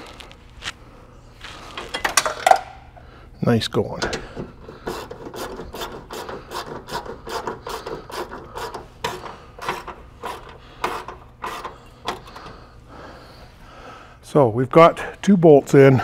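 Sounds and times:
socket ratchet rasping: 4.0s - 12.5s.

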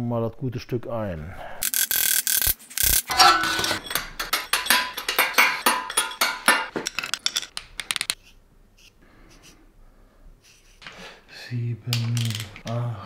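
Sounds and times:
metal bolts clinking on steel tray: 3.0s - 8.2s.

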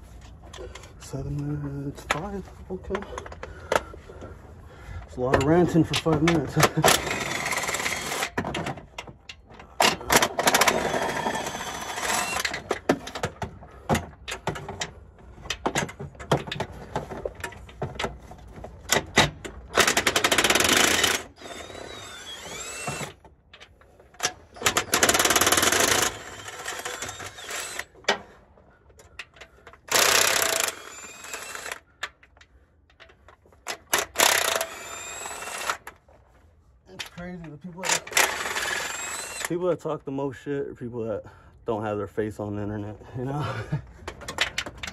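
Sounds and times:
impact wrench bursts: 5.4s - 8.8s, 9.7s - 12.9s, 18.9s - 23.2s, 24.2s - 28.2s, 29.8s - 31.9s, 33.7s - 35.9s, 37.8s - 39.6s.

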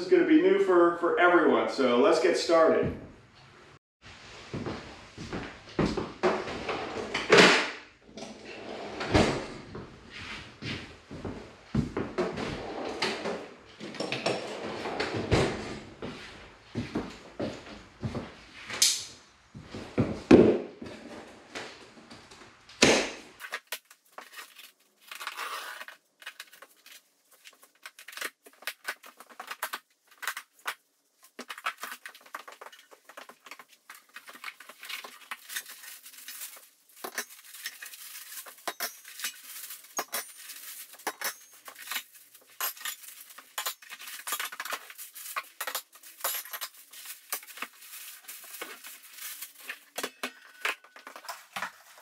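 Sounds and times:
cardboard rustling and scraping: 23.4s - 52.0s
metal parts clinking: 31.5s - 51.5s.

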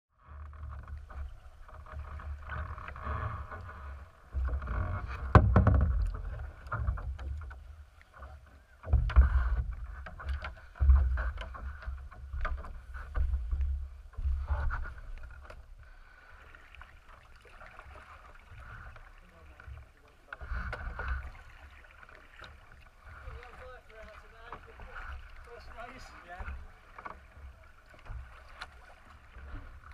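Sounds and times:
water sloshing against kayak hull: 0.2s - 29.9s
knocks and bumps on boat: 0.6s - 15.6s.

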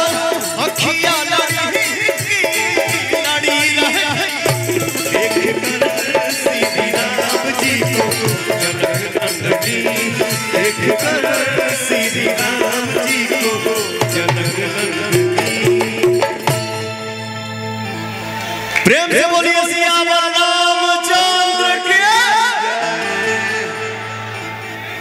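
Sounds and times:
fast steady percussion: 0.0s - 17.3s
keyboard melody: 0.0s - 25.0s.

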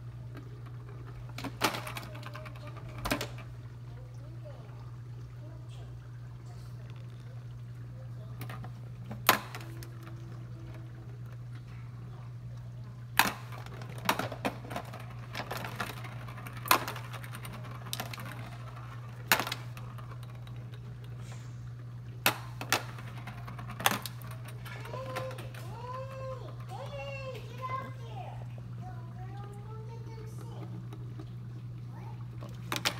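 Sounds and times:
steady low hum: 0.0s - 32.9s
ball clacking in plastic track: 0.3s - 3.6s, 8.3s - 11.4s, 13.1s - 21.2s, 22.2s - 28.0s, 32.4s - 32.9s.

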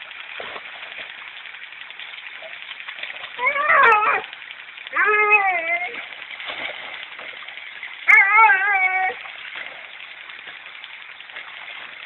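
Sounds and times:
dog whining: 3.4s - 4.3s, 5.0s - 6.0s, 8.1s - 9.2s.

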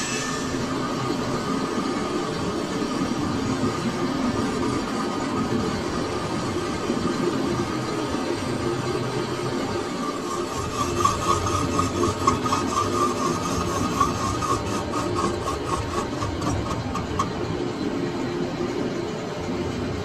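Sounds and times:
cutting tool scraping metal: 0.0s - 0.6s, 10.0s - 17.4s
lathe running: 0.0s - 19.4s.

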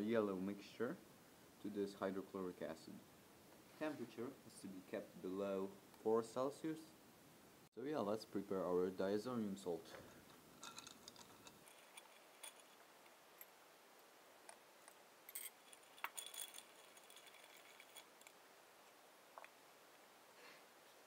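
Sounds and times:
rod clinking ice in glass: 10.6s - 13.2s, 15.3s - 18.3s.

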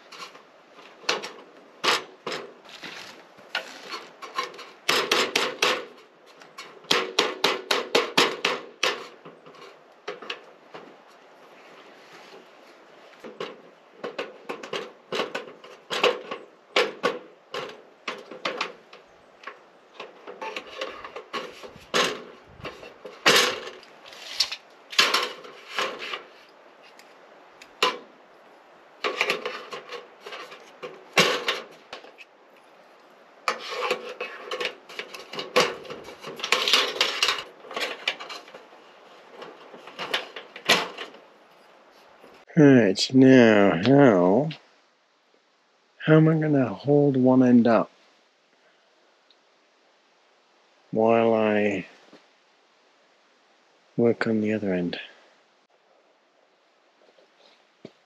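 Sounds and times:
knocks and clatters of tools: 0.0s - 11.2s, 13.1s - 28.1s, 29.0s - 32.3s, 33.5s - 41.6s.

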